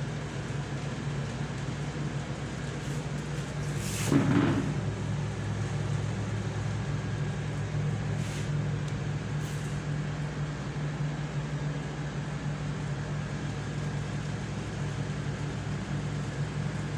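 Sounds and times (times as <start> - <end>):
low machine hum: 0.0 - 16.9.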